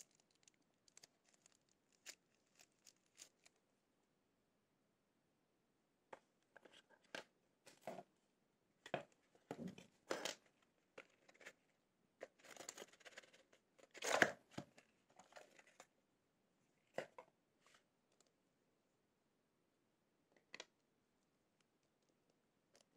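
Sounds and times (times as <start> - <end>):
cardboard and paper rustling: 12.2 - 15.8.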